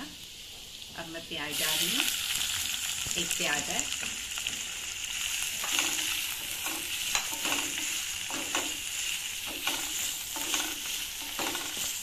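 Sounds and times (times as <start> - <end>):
onions sizzling in oil: 0.0 - 12.0
wooden spatula scraping: 5.4 - 12.0.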